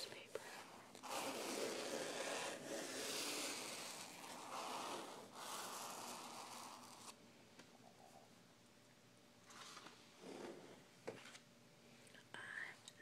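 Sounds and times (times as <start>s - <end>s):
fingertips scratching paper: 0.5s - 7.2s.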